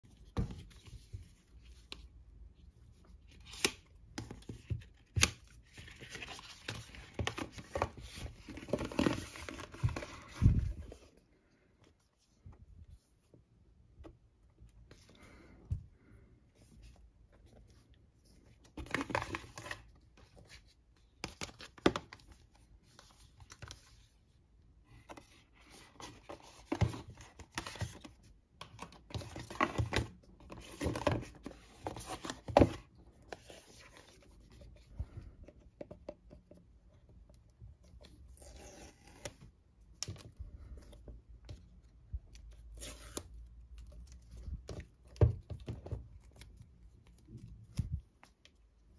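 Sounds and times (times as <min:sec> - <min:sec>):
cardboard sliding and rustling: 0:04.4 - 0:11.2.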